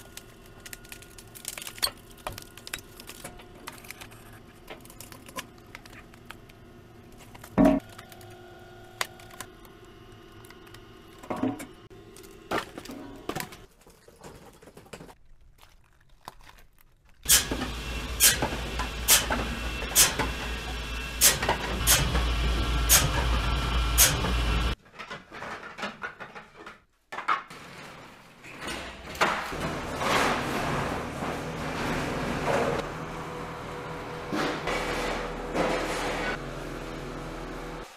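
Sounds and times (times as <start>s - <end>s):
bamboo cracking: 0.0s - 4.1s.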